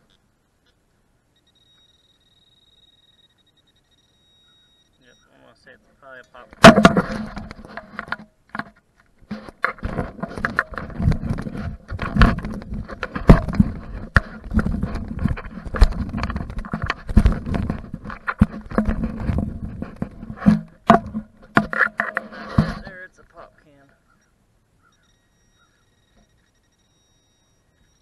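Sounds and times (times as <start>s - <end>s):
faint steady tone: 0.0s - 9.1s, 20.5s - 28.0s
hand digger scraping soil: 9.3s - 23.1s.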